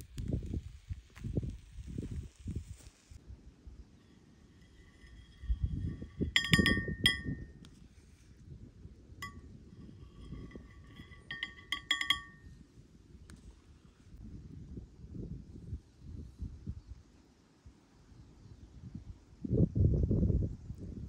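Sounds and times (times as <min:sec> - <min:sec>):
utensil clinking on dishes: 0:04.7 - 0:07.5, 0:09.2 - 0:12.4.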